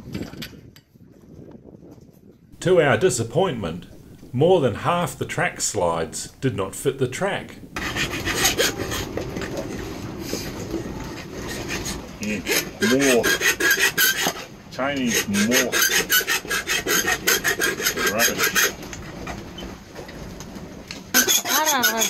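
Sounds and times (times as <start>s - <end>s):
hand file rasping on metal: 7.8s - 9.2s, 11.3s - 18.8s, 21.1s - 22.0s.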